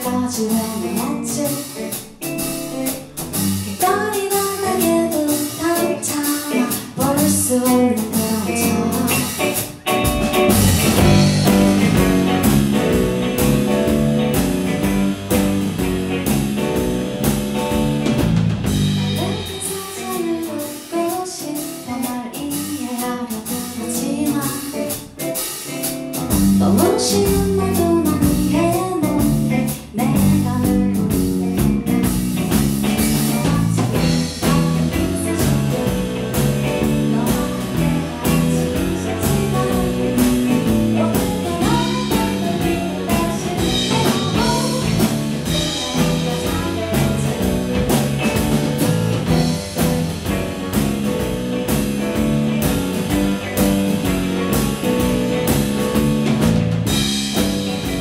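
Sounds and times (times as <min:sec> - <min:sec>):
woman singing: 0:00.0 - 0:11.6, 0:19.0 - 0:25.8, 0:26.4 - 0:48.6, 0:49.2 - 0:50.4.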